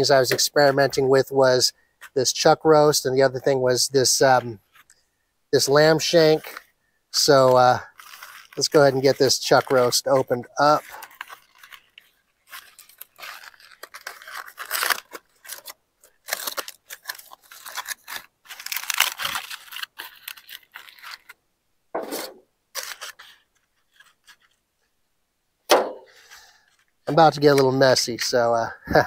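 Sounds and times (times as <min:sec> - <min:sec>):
aluminium foil crinkling and tearing: 0:05.6 - 0:21.4, 0:22.7 - 0:24.6.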